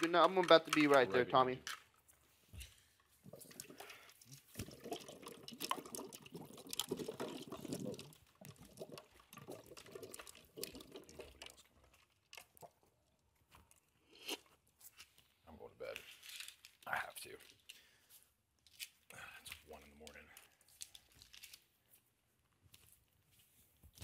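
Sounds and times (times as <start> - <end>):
liquid pouring into a cup: 3.3 - 13.0.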